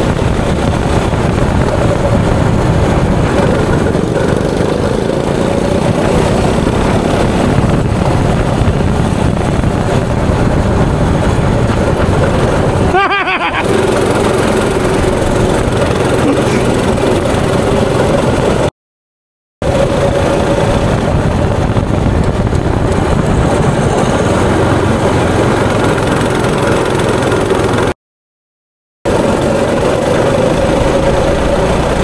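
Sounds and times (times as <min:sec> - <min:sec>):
go-kart engine running: 0:00.0 - 0:18.7, 0:19.6 - 0:27.9, 0:29.1 - 0:32.0.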